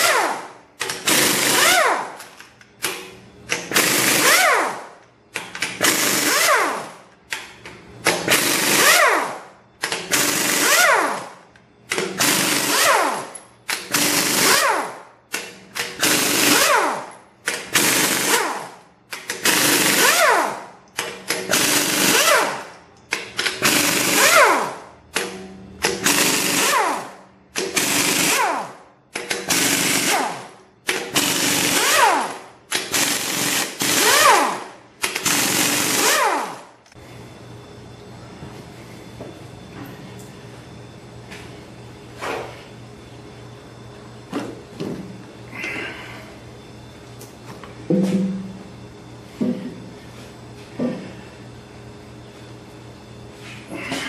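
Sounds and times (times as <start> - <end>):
pneumatic impact wrench hammering: 0.0 - 36.9
air motor falling whine: 0.0 - 54.0.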